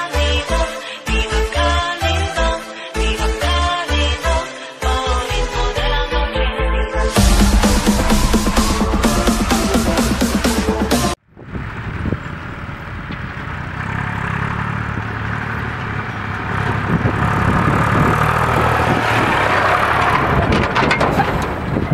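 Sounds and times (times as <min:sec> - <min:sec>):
electronic dance music: 0:05.3 - 0:11.2
tractor diesel engine running: 0:07.2 - 0:21.9.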